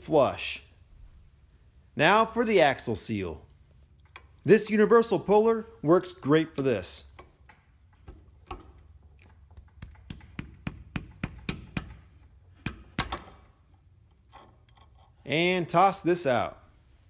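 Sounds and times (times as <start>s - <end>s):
metal clicks and taps: 3.9s - 4.4s.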